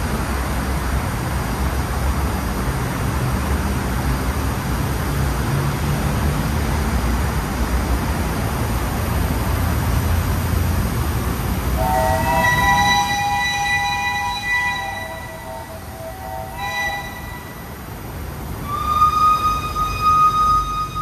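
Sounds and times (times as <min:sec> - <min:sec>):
steam locomotive whistle: 0:11.8 - 0:21.0.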